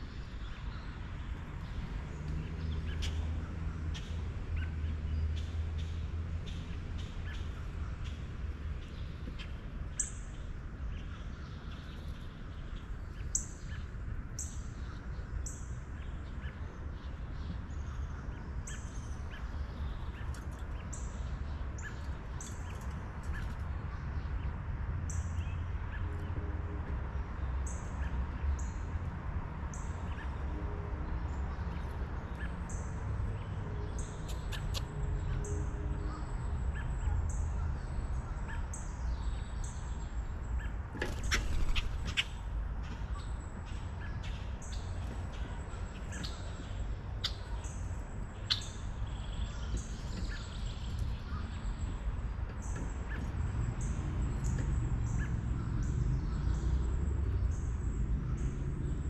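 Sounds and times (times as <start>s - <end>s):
birds chirping: 27.4s - 59.0s.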